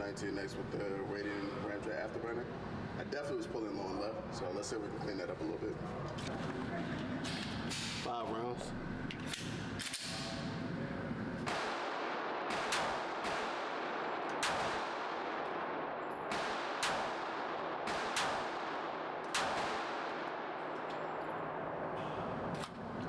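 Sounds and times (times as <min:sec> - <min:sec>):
pistol shots with ringing tail: 0:09.3 - 0:10.6, 0:11.4 - 0:22.7.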